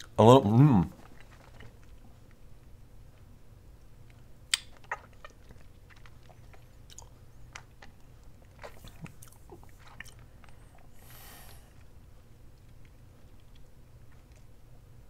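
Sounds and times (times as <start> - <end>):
wet mouth clicks and smacks: 4.5 - 10.6.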